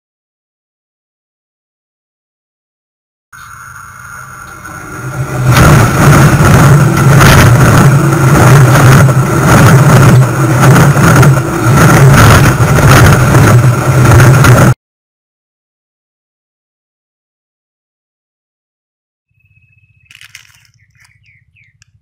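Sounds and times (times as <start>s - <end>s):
train wheels rumbling on track: 3.4s - 14.8s.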